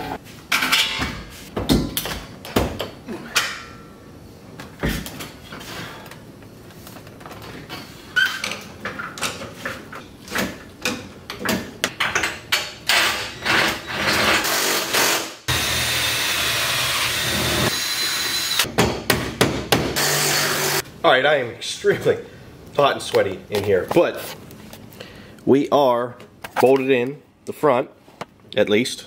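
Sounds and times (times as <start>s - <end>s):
power tool whirring: 14.2s - 18.7s, 20.0s - 20.8s.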